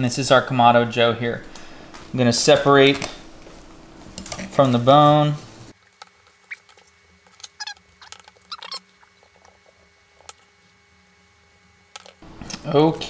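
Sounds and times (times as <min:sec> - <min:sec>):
meat pulled off bone squeaking: 0:06.3 - 0:09.7.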